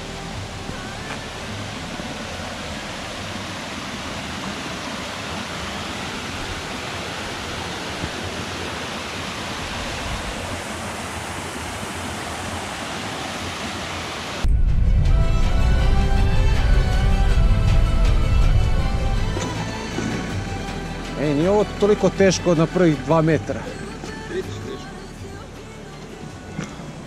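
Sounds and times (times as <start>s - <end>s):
waterfall rushing: 0.0s - 25.2s
loud music: 14.5s - 25.6s.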